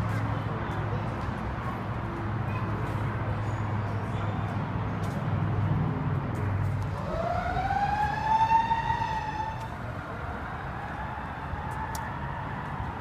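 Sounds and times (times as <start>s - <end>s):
siren wail: 6.9s - 13.0s.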